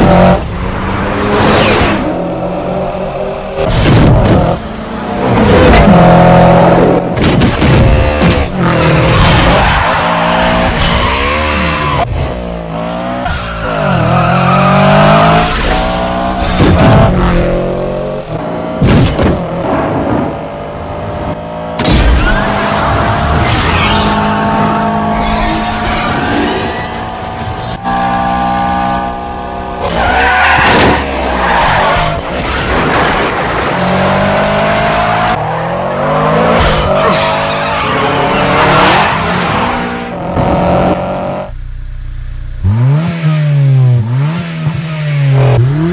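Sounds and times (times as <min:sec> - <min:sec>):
car engine revving: 0:00.0 - 0:45.9
tires squealing: 0:13.2 - 0:17.1, 0:22.2 - 0:41.0
tyres screeching: 0:34.6 - 0:40.6.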